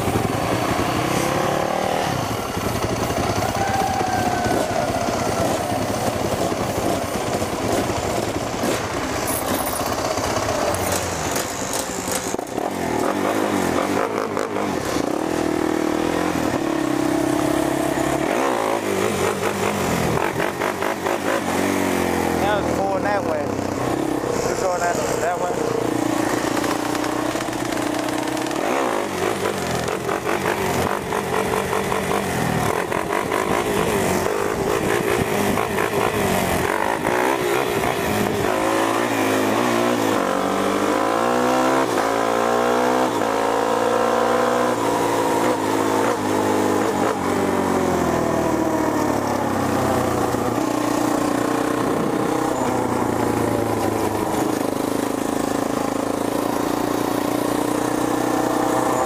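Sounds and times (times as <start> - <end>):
quad bike engine accelerating: 0.0 - 59.0.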